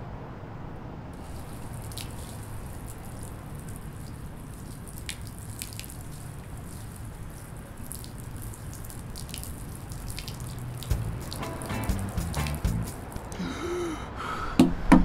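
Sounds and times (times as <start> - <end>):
liquid pouring and splashing: 1.2 - 13.4.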